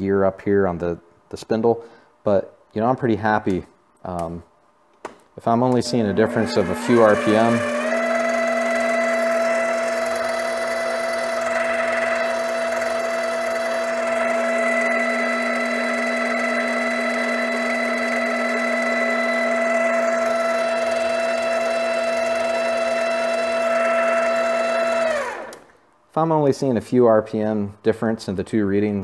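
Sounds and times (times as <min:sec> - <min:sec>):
lathe whining: 0:05.7 - 0:25.7.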